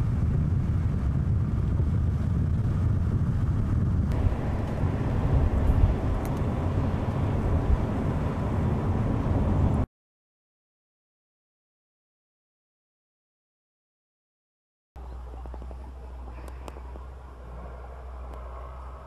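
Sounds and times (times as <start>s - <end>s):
car engine and tyre rumble: 0.0s - 9.9s, 15.0s - 19.0s.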